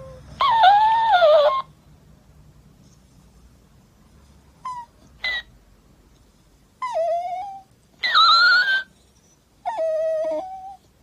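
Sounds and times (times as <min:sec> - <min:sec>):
dog whining: 0:00.0 - 0:01.8, 0:04.6 - 0:05.5, 0:06.8 - 0:11.0.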